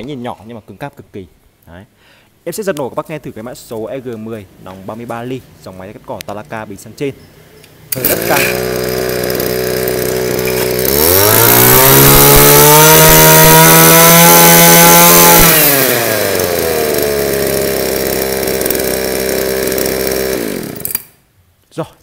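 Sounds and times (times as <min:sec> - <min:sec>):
brush cutter engine revving: 0:07.9 - 0:21.2.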